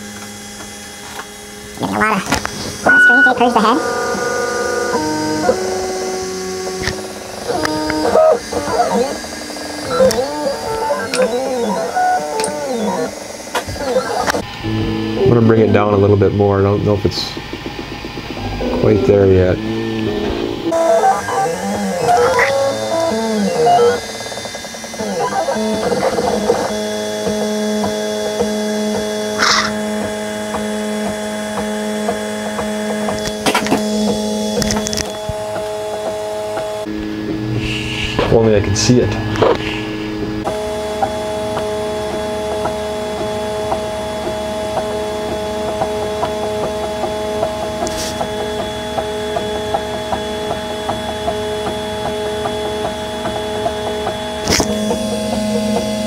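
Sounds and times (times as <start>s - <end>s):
printer stepper motors whining: 0.0s - 37.5s, 38.3s - 56.0s
print head ticking: 16.6s - 26.6s.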